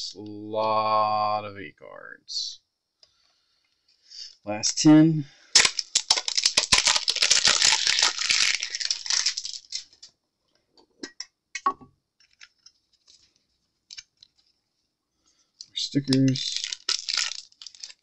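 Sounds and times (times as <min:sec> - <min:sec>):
cards and packaging rustling: 0:05.5 - 0:10.1, 0:12.2 - 0:14.7, 0:15.5 - 0:18.0.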